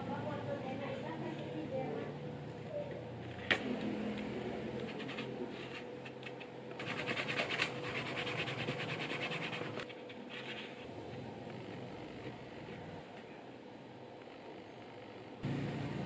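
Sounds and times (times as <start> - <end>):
dauber rubbing on leather: 6.8 - 10.9.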